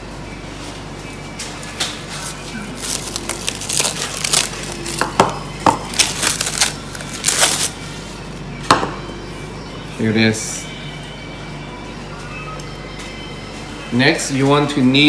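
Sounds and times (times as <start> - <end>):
cling wrap crinkling: 2.1 - 7.8.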